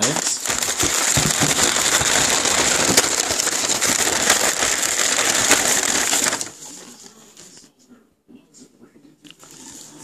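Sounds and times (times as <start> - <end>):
tissue paper crinkling: 0.0 - 7.7.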